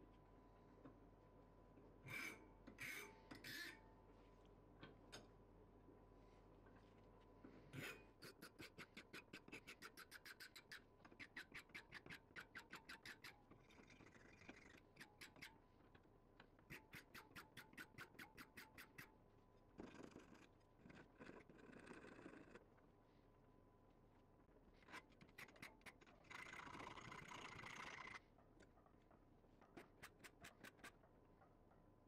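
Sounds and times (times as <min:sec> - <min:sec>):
hand file rasping on steel: 0:07.8 - 0:13.4, 0:16.7 - 0:19.1.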